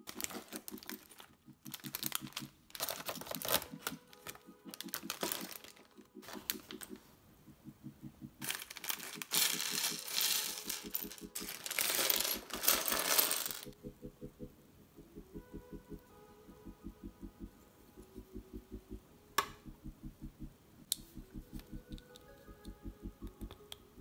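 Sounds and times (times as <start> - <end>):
plastic bags crinkling: 0.0 - 7.0, 8.4 - 13.7
plastic bricks rattling onto table: 8.4 - 13.7.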